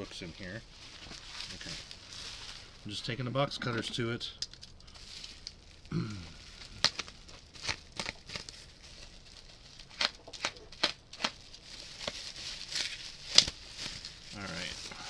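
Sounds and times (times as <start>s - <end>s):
tape and plastic crinkling: 0.8s - 15.0s.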